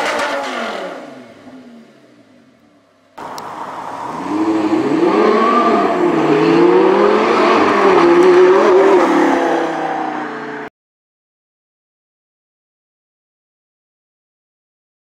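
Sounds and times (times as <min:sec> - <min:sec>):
sports car accelerating past: 0:03.2 - 0:10.7.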